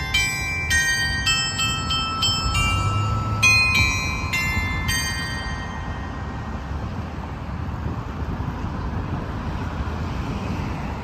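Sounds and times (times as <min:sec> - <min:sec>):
bell chime strikes: 0:00.0 - 0:06.7
city traffic hum: 0:00.0 - 0:11.0.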